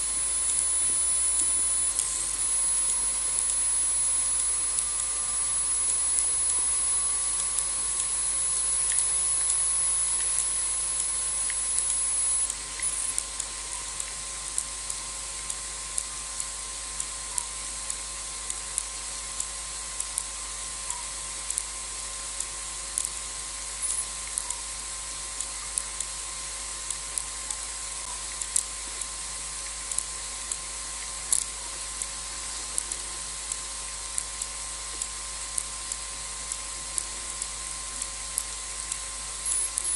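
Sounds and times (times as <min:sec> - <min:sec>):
thin high whine: 0:00.0 - 0:15.2, 0:23.7 - 0:25.0, 0:39.0 - 0:39.9
constant hiss: 0:00.0 - 0:39.9
faint clicks and ticks: 0:00.0 - 0:39.9.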